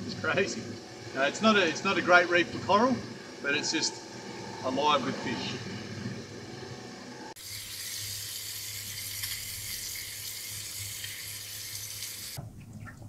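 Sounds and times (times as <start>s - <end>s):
fish sizzling in frying pan: 7.4s - 12.4s.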